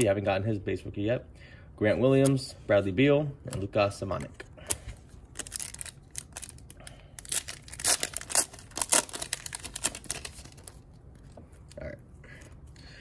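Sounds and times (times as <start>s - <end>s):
plastic foil wrapper tearing: 5.3s - 10.8s.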